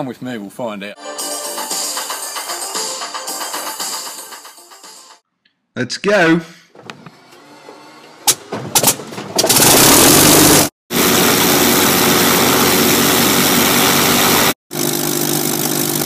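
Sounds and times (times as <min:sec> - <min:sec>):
aircraft engine running: 0:09.6 - 0:16.0.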